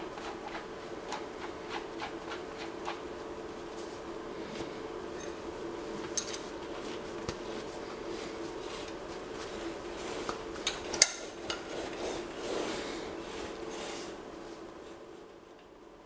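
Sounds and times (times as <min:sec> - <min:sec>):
steady low hum: 0:00.0 - 0:16.0
metal tools clinking on steel: 0:06.2 - 0:06.5.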